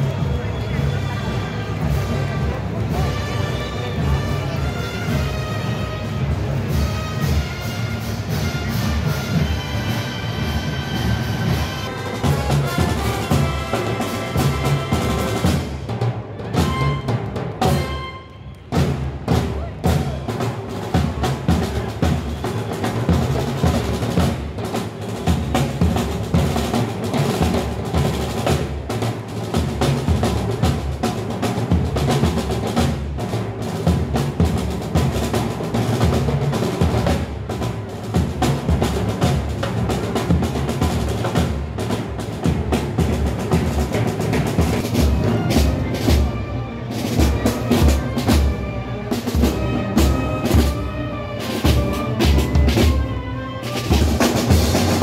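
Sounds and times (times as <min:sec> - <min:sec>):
pitched instruments: 0:00.0 - 0:24.0, 0:38.4 - 0:55.0
heavy drumming and percussion: 0:00.0 - 0:55.0.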